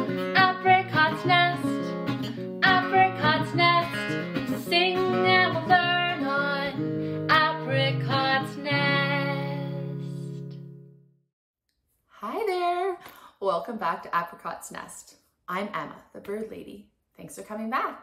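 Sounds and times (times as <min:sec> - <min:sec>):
strummed acoustic guitar music: 0:00.0 - 0:10.9.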